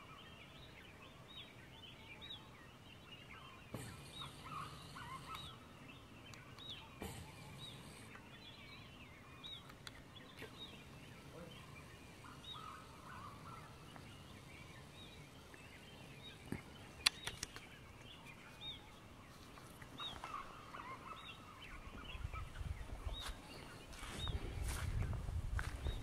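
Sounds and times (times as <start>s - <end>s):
birds chirping: 0.0s - 26.0s
sharp clicks: 9.6s - 10.0s, 17.0s - 18.1s.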